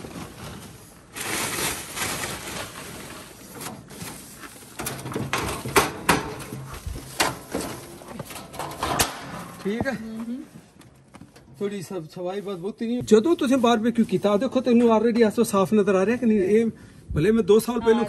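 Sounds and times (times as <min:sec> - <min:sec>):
snow scraped off grill: 0:00.0 - 0:04.7
metal grill clanks: 0:04.8 - 0:09.6.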